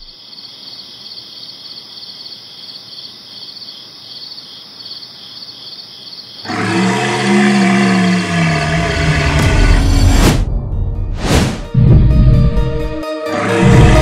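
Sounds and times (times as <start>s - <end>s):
crickets chirping: 0.0s - 7.2s
loud music: 9.4s - 14.0s.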